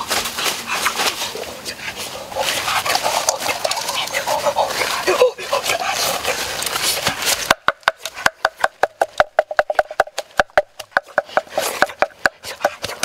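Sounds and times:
wooden pestle pounding in mortar: 0:07.4 - 0:13.0.

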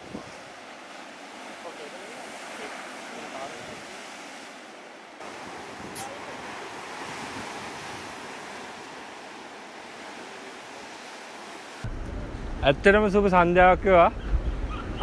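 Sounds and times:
waves breaking against rocks: 0:00.0 - 0:11.8
wind: 0:00.0 - 0:15.0.

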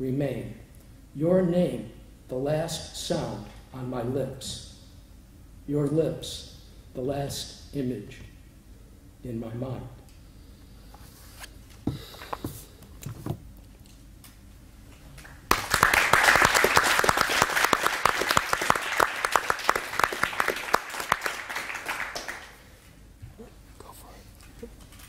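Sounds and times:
audience applause: 0:15.2 - 0:22.7.

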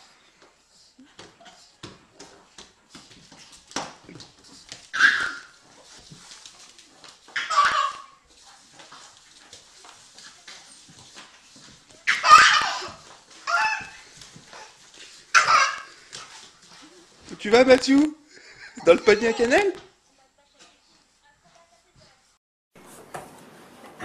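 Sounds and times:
baby laughing: 0:07.4 - 0:08.2, 0:12.1 - 0:14.0, 0:15.3 - 0:15.9, 0:18.7 - 0:19.7.

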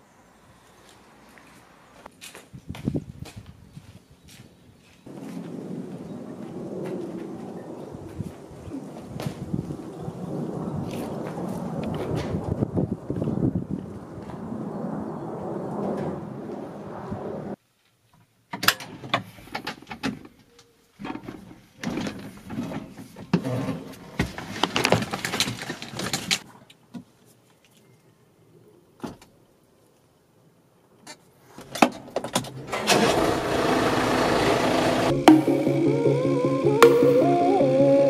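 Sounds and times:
tractor engine starting: 0:32.5 - 0:38.0.

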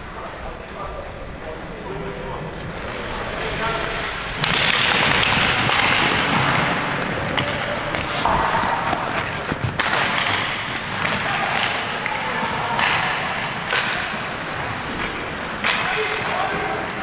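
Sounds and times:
skates scraping ice: 0:02.2 - 0:17.0
stick and puck knocks: 0:04.4 - 0:16.3.

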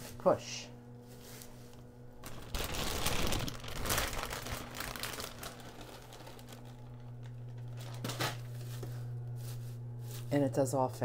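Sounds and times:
plastic bag crinkling: 0:02.1 - 0:08.9
leaves rustling: 0:02.2 - 0:10.3.

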